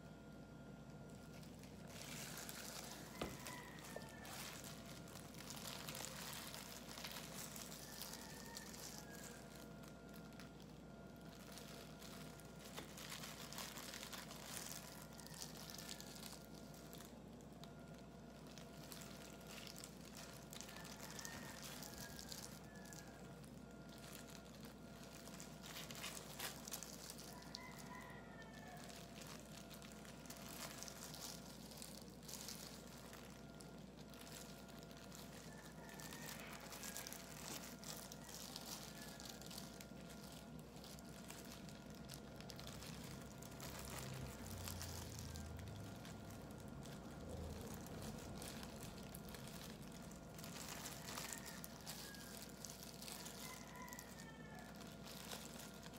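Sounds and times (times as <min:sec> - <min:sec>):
steady low hum: 0:00.0 - 0:27.9
plastic gloves crinkling: 0:00.0 - 0:55.9.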